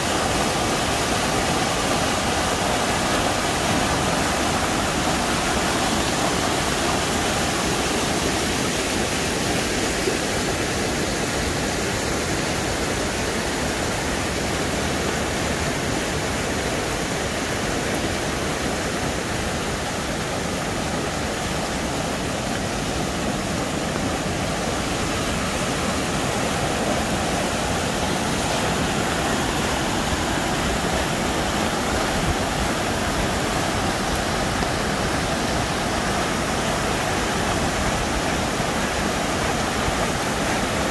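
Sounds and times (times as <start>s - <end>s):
creek rushing over rocks: 0.0s - 40.9s.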